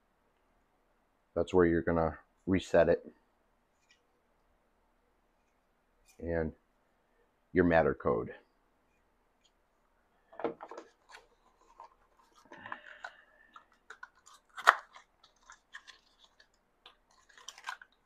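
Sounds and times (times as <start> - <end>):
plastic and cardboard handling: 10.3 - 18.0.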